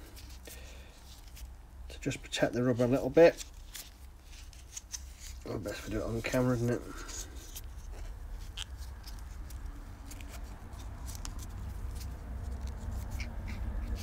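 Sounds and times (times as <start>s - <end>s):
tape wrapping clicks and rustles: 3.2s - 14.0s.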